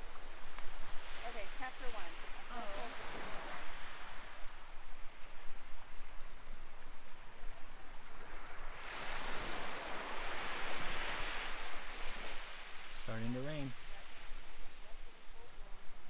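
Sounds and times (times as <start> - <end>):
waves washing up pebble beach: 0.0 - 4.4, 8.0 - 14.8.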